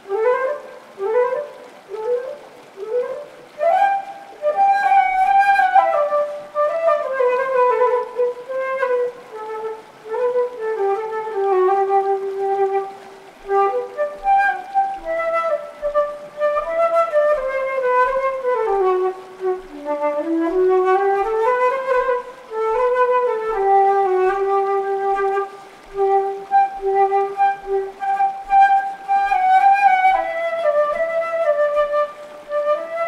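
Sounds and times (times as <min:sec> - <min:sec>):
solo flute melody: 0:00.0 - 0:33.0.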